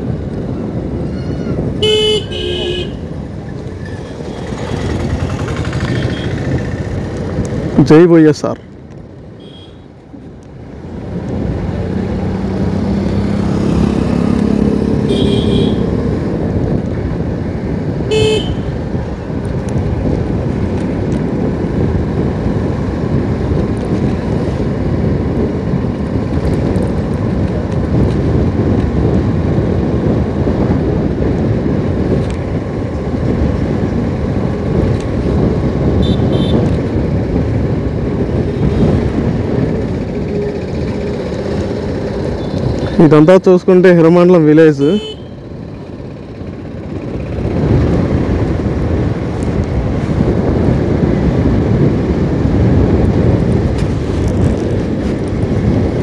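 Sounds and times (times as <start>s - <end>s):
wind and road noise: 0.0s - 56.0s
vehicle horn toots: 1.8s - 3.0s, 15.0s - 16.0s, 18.1s - 18.7s, 36.0s - 36.7s, 44.8s - 45.4s
motorcycle engine running: 1.8s - 7.7s, 32.9s - 43.0s.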